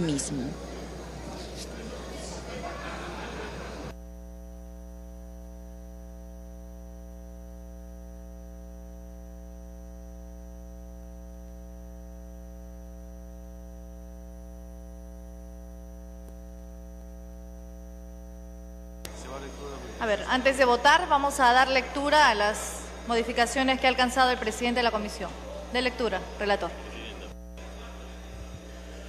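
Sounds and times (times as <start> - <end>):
electrical mains hum: 0.0 - 29.0.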